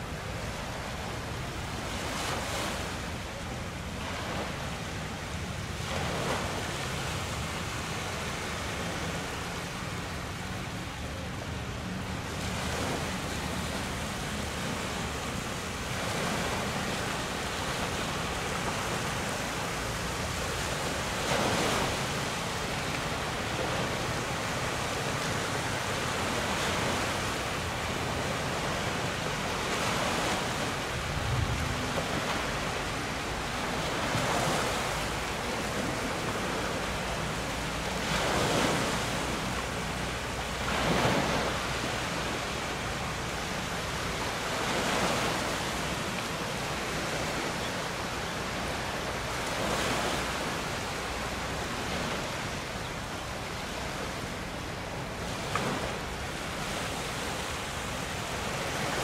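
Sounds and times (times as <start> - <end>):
water rushing around boat hull: 0.0 - 59.0
wind buffeting microphone: 30.8 - 34.7.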